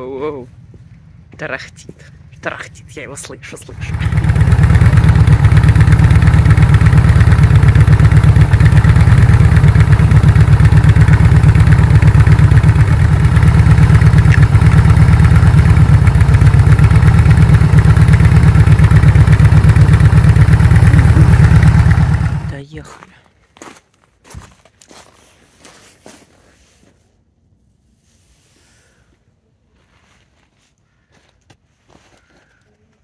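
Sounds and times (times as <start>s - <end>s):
motorcycle engine idling: 0.0s - 22.6s.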